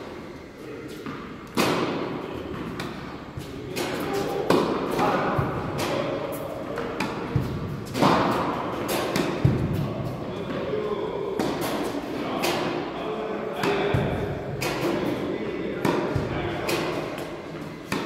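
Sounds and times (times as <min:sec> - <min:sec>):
tennis ball bouncing: 0:00.9 - 0:10.6, 0:13.6 - 0:15.2, 0:15.8 - 0:18.0
racket hitting tennis ball: 0:00.9 - 0:13.0, 0:13.6 - 0:18.0.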